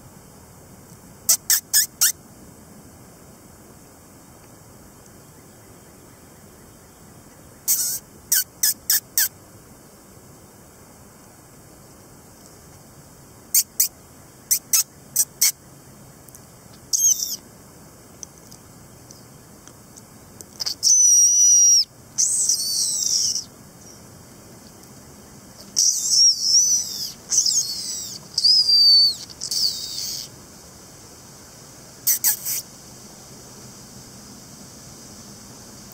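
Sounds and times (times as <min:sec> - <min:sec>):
person making high-pitched squeaks: 0:01.3 - 0:02.2, 0:07.7 - 0:09.3, 0:13.5 - 0:13.9, 0:14.5 - 0:15.6, 0:16.9 - 0:17.4, 0:20.6 - 0:23.4, 0:25.7 - 0:30.3, 0:32.0 - 0:32.6.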